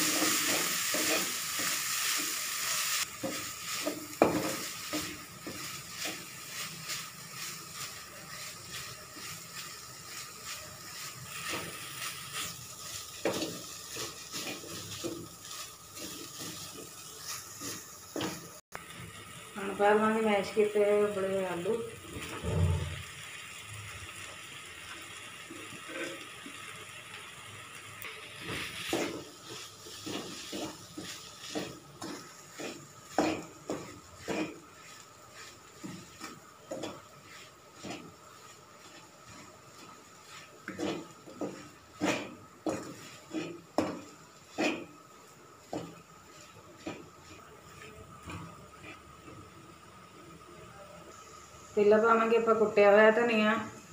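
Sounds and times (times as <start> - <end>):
wooden spatula scraping metal pan: 13.2 - 18.4, 28.5 - 44.9, 45.6 - 49.1
faint steady hiss: 23.0 - 53.9.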